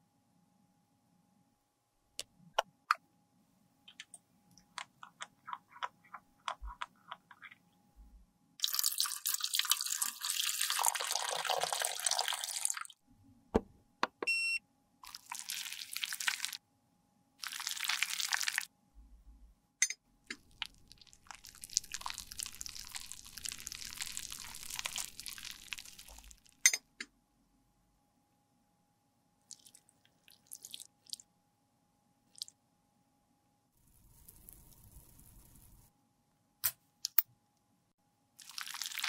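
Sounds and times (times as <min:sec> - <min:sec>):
alcohol pouring with splashing hiss: 0:08.6 - 0:12.9, 0:15.0 - 0:16.6, 0:20.9 - 0:26.5, 0:38.4 - 0:39.0.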